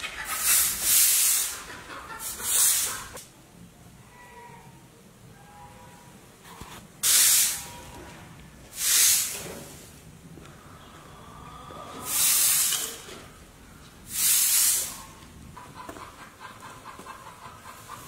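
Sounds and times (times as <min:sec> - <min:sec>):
broom sweeping concrete: 0:00.2 - 0:03.2, 0:06.6 - 0:07.7, 0:08.7 - 0:10.0, 0:12.1 - 0:13.1, 0:14.1 - 0:15.1.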